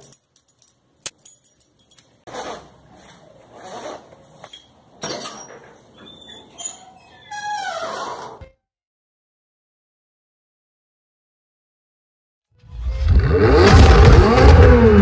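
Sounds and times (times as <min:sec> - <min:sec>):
keys jingling: 0:00.0 - 0:02.3.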